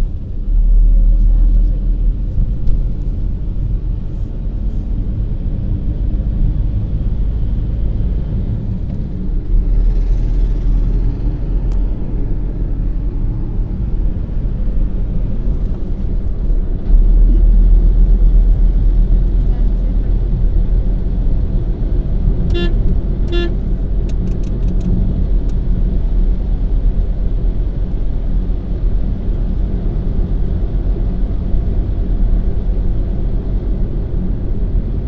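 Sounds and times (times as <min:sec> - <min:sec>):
car interior road rumble: 0:00.0 - 0:35.0.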